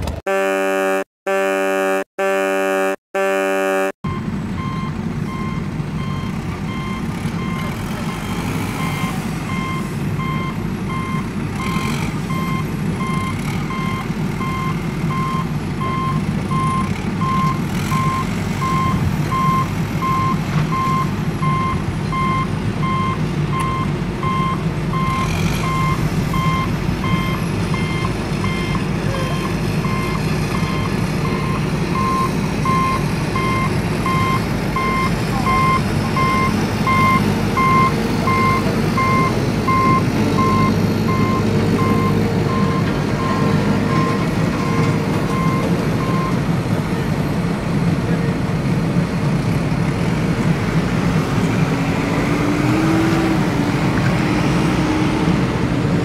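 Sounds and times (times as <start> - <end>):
truck reversing alarm beeping: 0.3 - 46.6.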